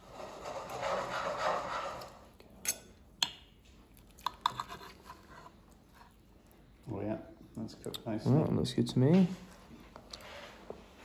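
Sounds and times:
knife scraping on plate: 4.4s - 6.2s.

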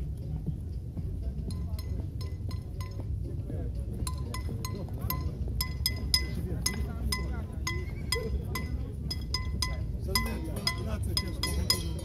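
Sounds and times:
murmur of street noise: 0.0s - 12.0s
bells clanging: 4.0s - 12.0s.

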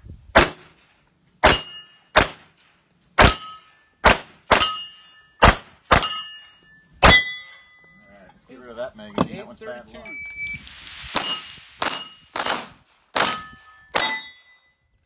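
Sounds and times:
pistol shots: 0.3s - 0.8s, 1.4s - 2.6s, 3.2s - 6.2s, 11.2s - 14.4s
metallic ring of steel target: 1.4s - 2.3s, 3.2s - 8.0s, 11.2s - 12.6s, 13.2s - 14.9s.

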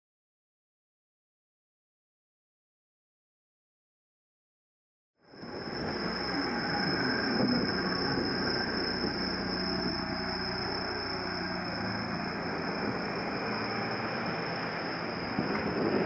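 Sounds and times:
bicycle road rumble: 5.2s - 16.0s
high-pitched whine: 5.2s - 16.0s
wind noise: 5.2s - 16.0s.

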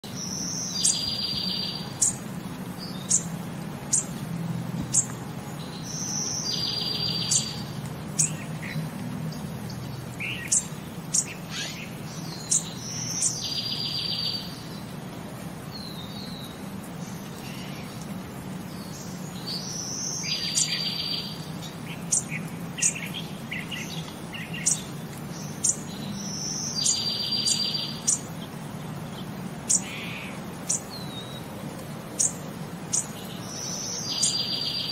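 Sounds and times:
birds chirping: 0.0s - 34.9s.

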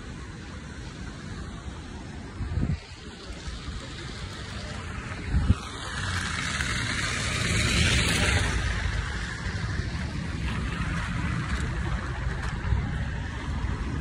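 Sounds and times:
steady low rumble: 0.0s - 14.0s
car tyres hissing on wet road: 2.7s - 12.3s.

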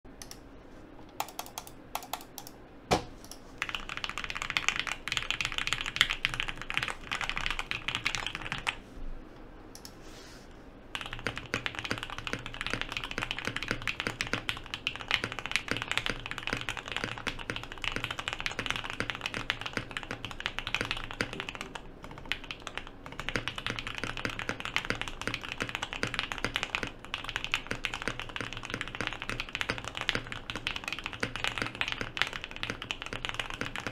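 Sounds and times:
keyboard clicks: 0.2s - 0.4s, 1.0s - 8.8s
mechanical keyboard typing: 1.1s - 2.6s, 3.2s - 8.8s, 11.0s - 33.9s.

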